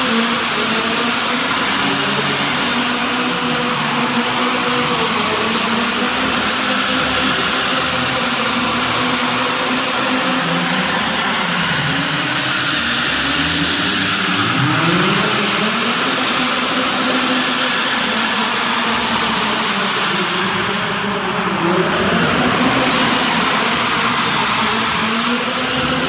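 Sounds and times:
car engines revving: 0.0 - 26.0
steady rushing noise: 0.0 - 26.0.

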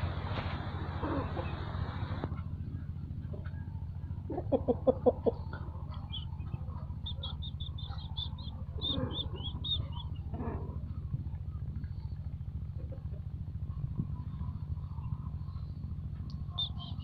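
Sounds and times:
steady low hum: 0.0 - 17.0
chicken clucking: 0.9 - 2.4, 4.2 - 10.9
small bird chirping rapidly: 5.9 - 10.3, 16.3 - 17.0.

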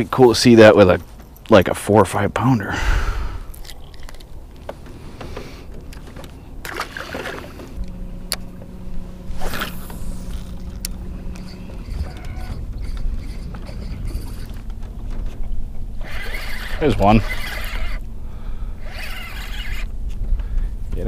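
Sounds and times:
low rumble: 2.8 - 16.0
electric trolling motor humming: 3.2 - 20.8
fishing tackle clicks and rattles: 3.5 - 4.4.

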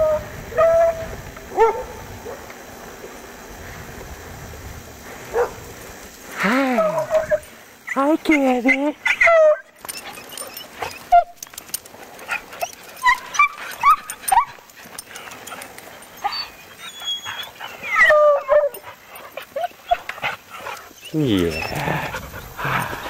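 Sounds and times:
dogs whining and yipping: 0.0 - 2.0, 6.8 - 23.0.

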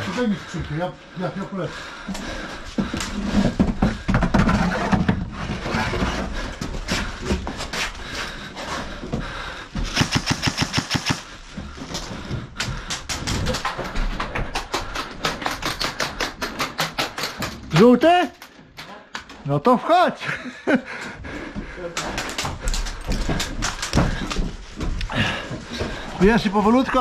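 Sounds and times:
footsteps on wooden boards: 1.8 - 10.0, 11.2 - 19.4, 20.9 - 27.0
airsoft guns full-auto fire: 9.9 - 11.3.

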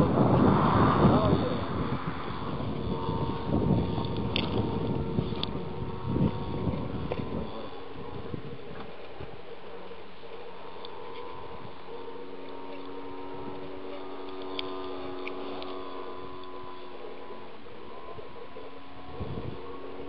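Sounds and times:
model airplane motor droning: 0.0 - 20.0
faint clicks: 12.4 - 15.8.

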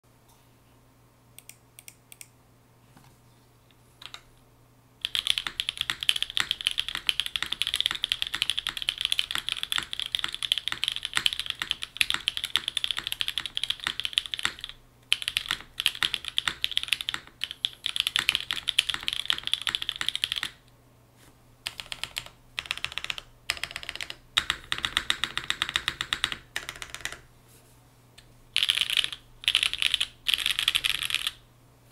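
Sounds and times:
mechanical keyboard typing: 4.0 - 4.3, 5.0 - 20.6, 21.6 - 27.3, 28.6 - 31.4.

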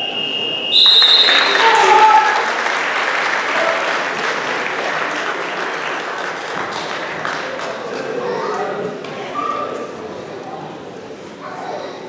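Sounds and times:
crowd applauding: 0.7 - 9.0.

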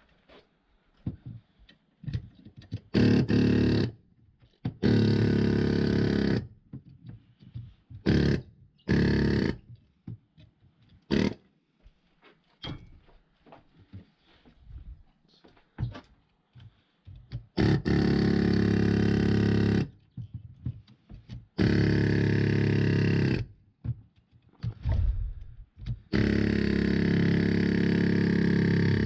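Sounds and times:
power tool buzzing: 21.6 - 23.4, 26.1 - 29.0.

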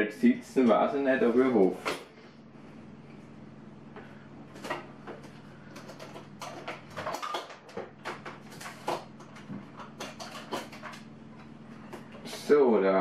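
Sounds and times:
faint steady hum: 0.0 - 13.0
clicks and rattles of kitchen gear: 5.7 - 11.1.

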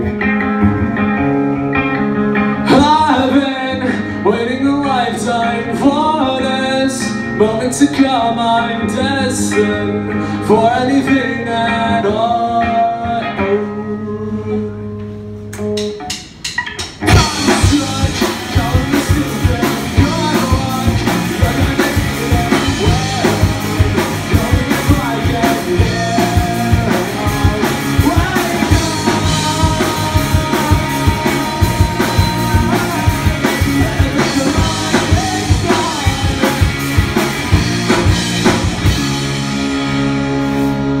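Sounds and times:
electric guitar chords: 0.0 - 41.0
live rock band: 0.0 - 41.0
man singing: 2.6 - 15.2, 17.1 - 38.7
drum fill: 15.7 - 39.7.

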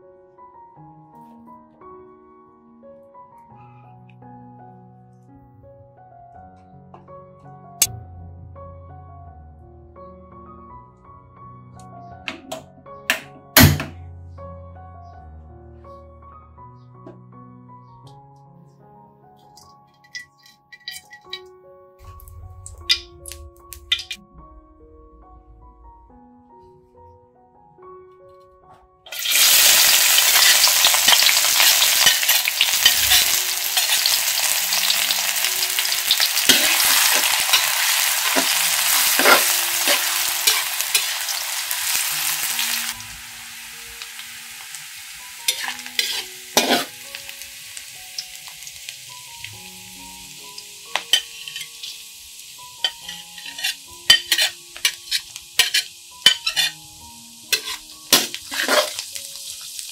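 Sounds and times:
metal spatula scraping pan: 20.0 - 21.4, 29.1 - 34.4, 36.0 - 42.0, 45.5 - 47.0, 51.0 - 52.0, 52.8 - 56.8, 57.5 - 59.1
onion sizzling in hot oil: 29.1 - 59.9.

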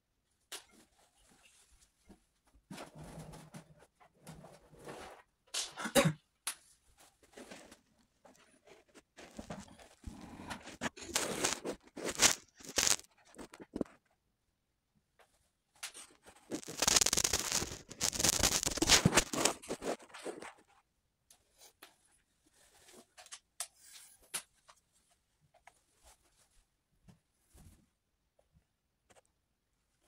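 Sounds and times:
scraping and rustling: 6.9 - 14.0, 16.0 - 20.7.

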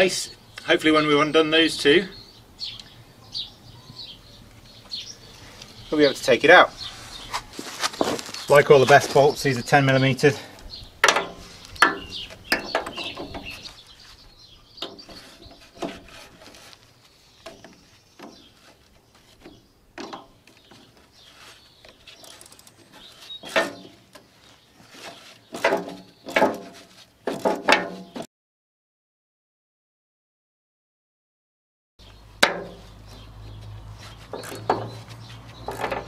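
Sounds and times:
spanner clinking and scraping on bolt: 11.0 - 13.7, 20.0 - 24.0, 34.2 - 36.0
short squeaks: 11.2 - 16.8, 20.2 - 27.0.

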